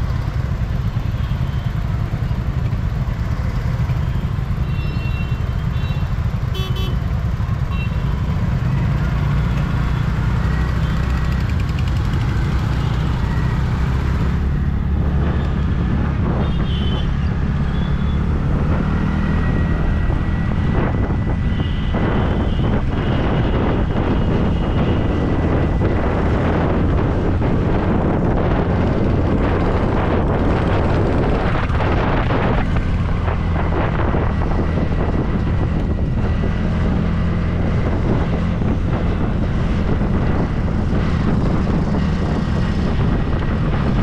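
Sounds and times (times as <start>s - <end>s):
road traffic: 0.0s - 44.0s
vehicle horn toots: 4.0s - 7.1s, 16.4s - 18.2s, 21.5s - 23.6s.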